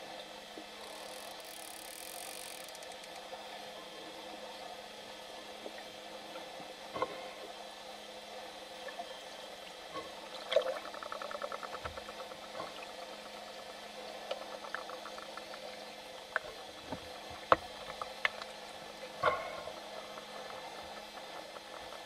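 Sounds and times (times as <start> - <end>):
underwater hum and water noise: 0.0 - 22.0
dolphin click trains: 0.8 - 3.3, 10.6 - 22.0
dolphin clicks and pops: 10.7 - 13.4, 14.2 - 18.5.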